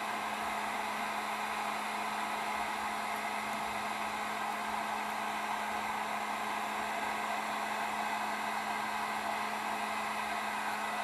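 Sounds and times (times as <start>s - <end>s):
heat gun blowing hot air: 0.0s - 11.0s.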